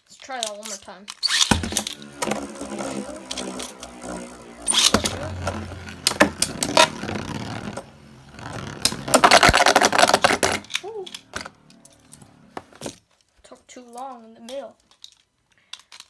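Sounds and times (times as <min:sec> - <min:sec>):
spinning tops whirring: 0:01.2 - 0:12.9.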